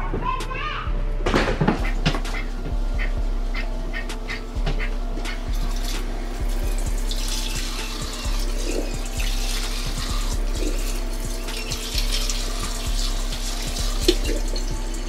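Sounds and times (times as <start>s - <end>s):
background music: 0.0s - 15.0s
faucet running into sink: 6.8s - 15.0s.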